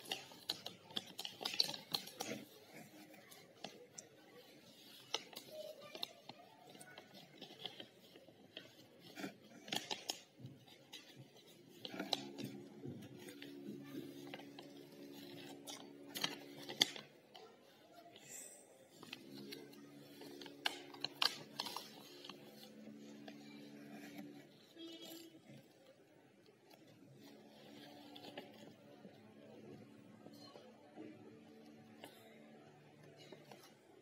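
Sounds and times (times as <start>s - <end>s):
paper pages rustling: 0.0s - 34.0s.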